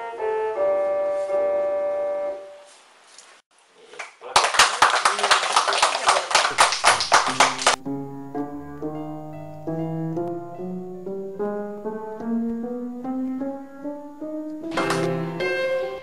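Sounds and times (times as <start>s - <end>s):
slow piano melody: 0.0s - 2.7s, 6.5s - 16.0s
rhythmic handclaps: 4.0s - 7.8s, 14.7s - 15.2s.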